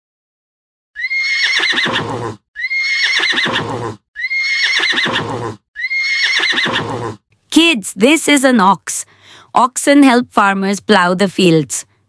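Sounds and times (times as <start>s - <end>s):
horse whinnying: 1.0s - 7.2s.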